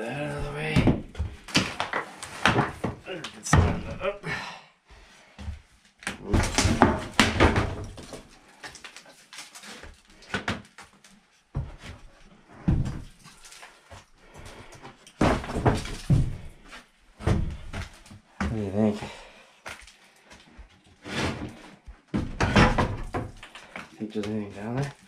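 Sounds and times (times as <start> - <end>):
wooden boards knocking and scraping: 0.4 - 4.0, 6.1 - 8.3, 14.6 - 16.4, 21.1 - 25.0.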